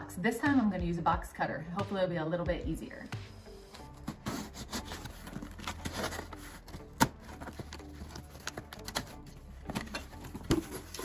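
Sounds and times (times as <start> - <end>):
blade scraping tape and cardboard: 4.0 - 6.4.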